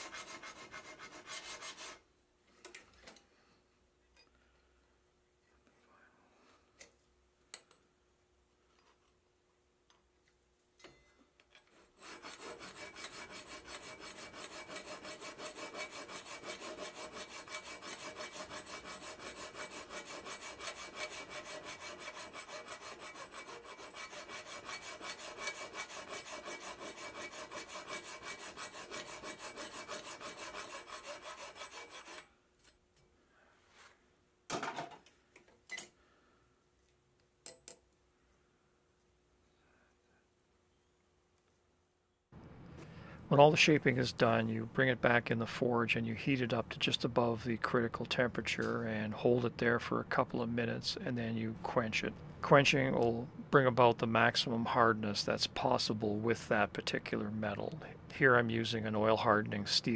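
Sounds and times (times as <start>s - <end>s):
hand file filing steel: 0.0s - 2.0s, 11.7s - 32.3s.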